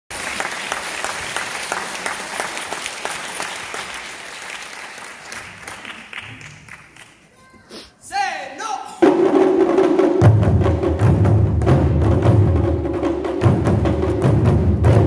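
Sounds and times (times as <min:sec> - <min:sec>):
audience applauding: 0:00.1 - 0:07.4.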